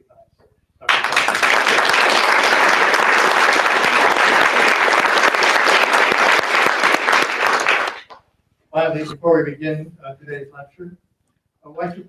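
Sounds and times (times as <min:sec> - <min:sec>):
audience applauding: 0:00.8 - 0:08.2.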